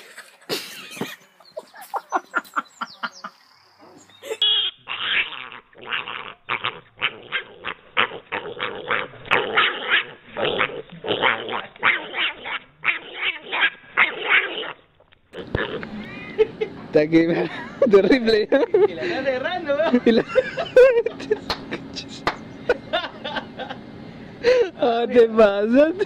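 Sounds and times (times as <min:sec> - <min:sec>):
short pitched calls: 0:02.6 - 0:08.1
pig grunting and squealing: 0:04.4 - 0:14.8, 0:15.4 - 0:16.4.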